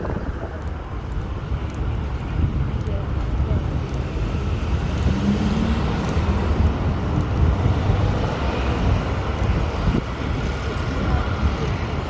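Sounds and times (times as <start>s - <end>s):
low rumble of road traffic: 0.0s - 12.0s.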